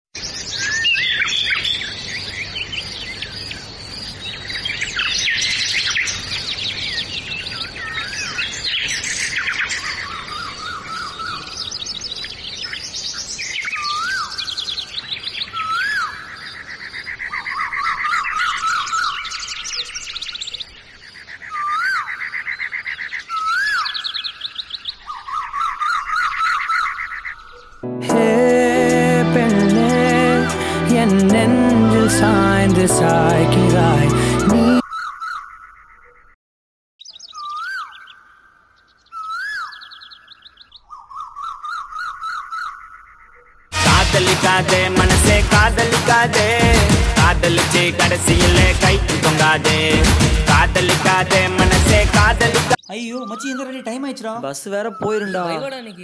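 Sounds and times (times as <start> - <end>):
songbirds chirping and trilling: 0.2 - 27.9, 29.2 - 36.4, 37.0 - 43.7, 47.3 - 56.0
rising and falling bird whistle: 39.2 - 42.6.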